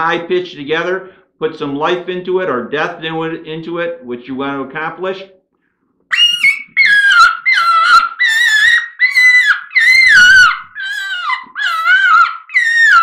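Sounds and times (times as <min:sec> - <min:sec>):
predator call squealing: 0:06.1 - 0:13.0.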